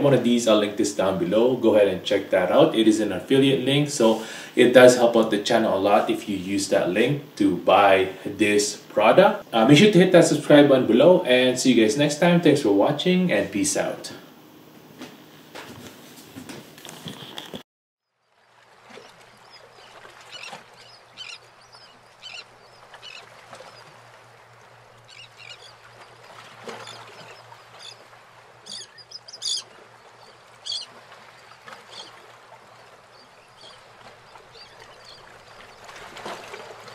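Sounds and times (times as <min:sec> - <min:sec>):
steady hiss: 0:00.0 - 0:15.4
birds chirping: 0:19.0 - 0:36.9.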